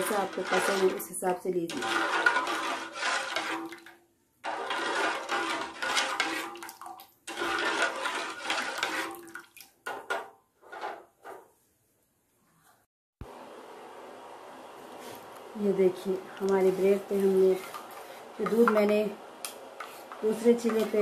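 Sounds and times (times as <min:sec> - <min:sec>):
syrup sloshing in a metal pot: 0:00.0 - 0:10.2
metal spoon stirring in a pot: 0:00.0 - 0:10.9, 0:19.8 - 0:21.0.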